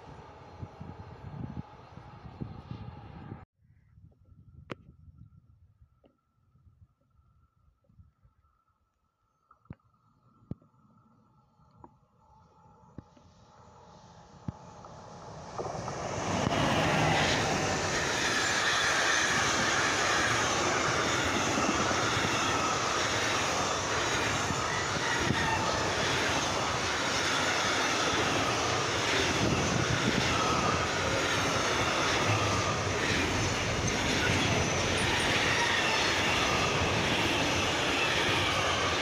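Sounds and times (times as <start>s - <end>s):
train wheels rumbling on rails: 14.5s - 39.0s.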